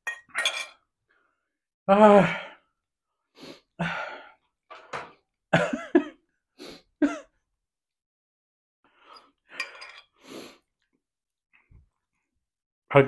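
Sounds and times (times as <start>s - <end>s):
glass bowl clinking: 0.0s - 0.8s, 9.6s - 10.1s
man gasping and exclaiming: 1.9s - 2.7s.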